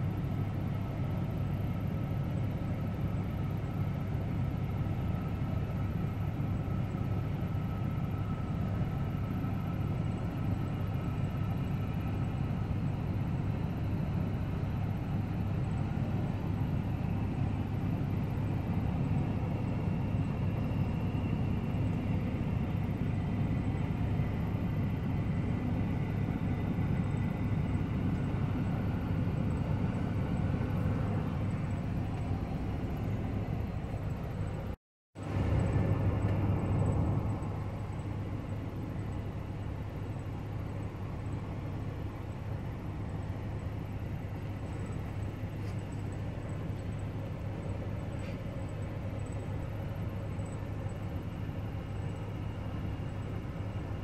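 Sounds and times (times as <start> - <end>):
jet airliner rumble and whine: 0.0 - 54.0.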